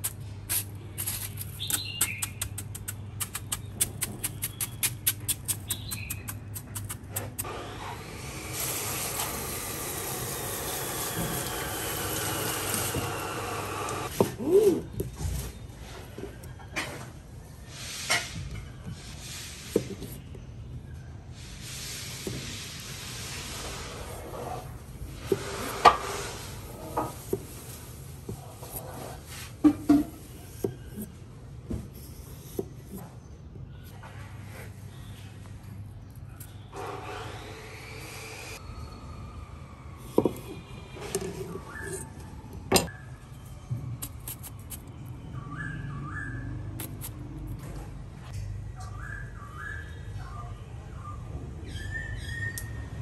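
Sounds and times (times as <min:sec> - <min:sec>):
tap water spraying: 0:08.4 - 0:14.1
short squeak: 0:40.3 - 0:44.9.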